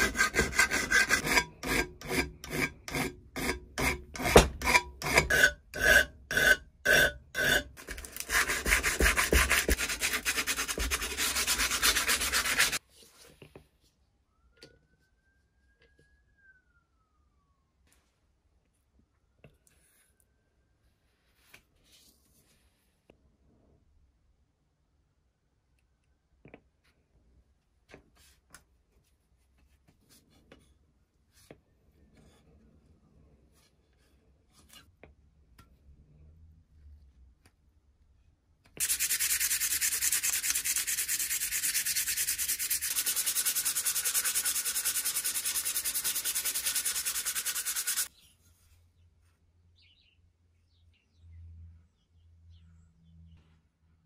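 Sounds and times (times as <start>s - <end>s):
metal sanding hiss on stone: 38.8s - 48.1s.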